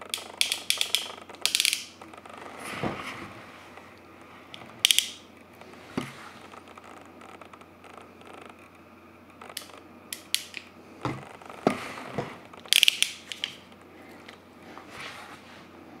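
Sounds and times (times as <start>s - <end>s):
crimp tool ratchet clicks: 0.1s - 1.9s.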